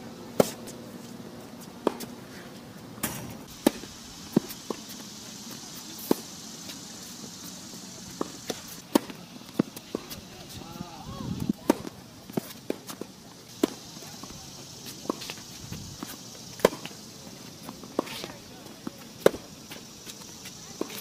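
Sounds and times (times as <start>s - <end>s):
tennis ball bouncing on court: 1.8s - 2.1s, 3.5s - 7.1s, 8.1s - 10.3s, 11.6s - 15.4s, 16.0s - 21.0s
tennis ball hitting racket: 1.8s - 2.1s, 3.0s - 7.2s, 8.1s - 10.3s, 11.4s - 15.4s, 16.0s - 21.0s.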